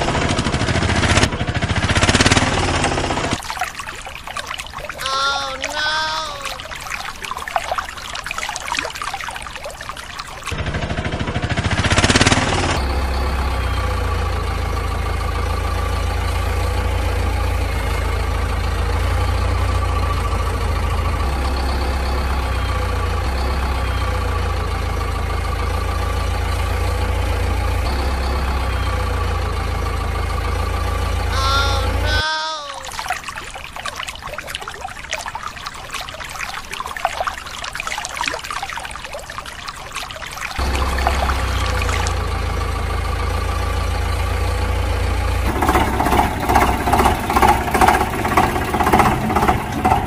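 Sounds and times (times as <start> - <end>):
vehicle engine idling: 0.0 - 3.4, 10.6 - 32.2, 40.6 - 50.0
water splashing in a plastic tub: 0.0 - 12.9, 31.3 - 43.0, 45.4 - 50.0.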